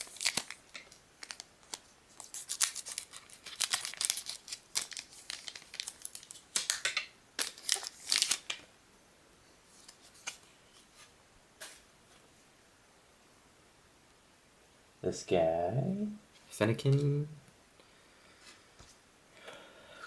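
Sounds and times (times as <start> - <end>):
foil wrapper crinkling and tearing: 0.0 - 8.6.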